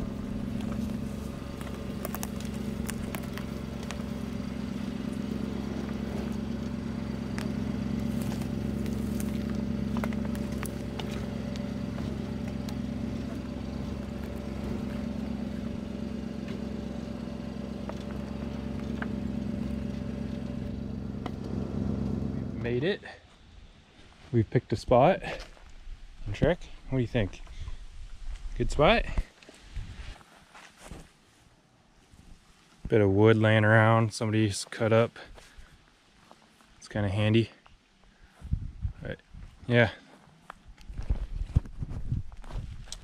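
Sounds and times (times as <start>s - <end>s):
tyres cracking twigs: 0.0s - 22.1s
truck engine running: 0.0s - 23.0s.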